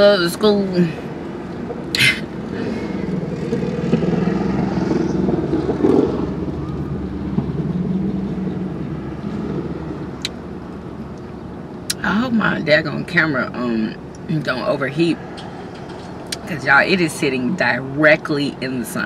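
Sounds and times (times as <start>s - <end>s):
vehicle engine running: 0.0s - 19.0s.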